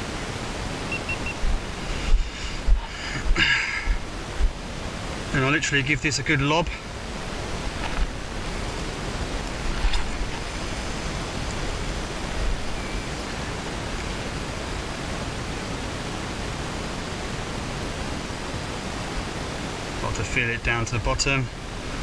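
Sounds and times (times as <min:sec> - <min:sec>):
wind on microphone: 0:00.0 - 0:05.3, 0:06.8 - 0:19.6
low wind buffets: 0:00.0 - 0:22.0.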